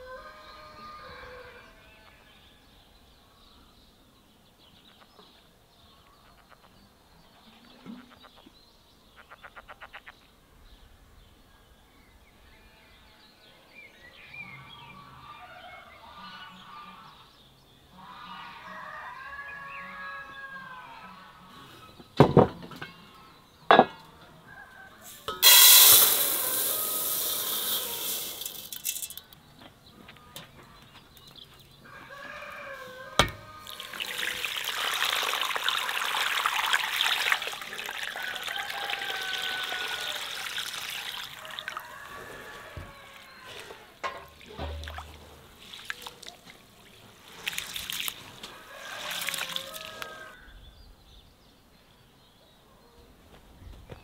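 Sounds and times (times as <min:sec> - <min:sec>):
water pouring into basin: 0:25.4 - 0:29.1, 0:33.6 - 0:41.9, 0:47.2 - 0:50.4
hand swishing rice in water: 0:47.2 - 0:50.2.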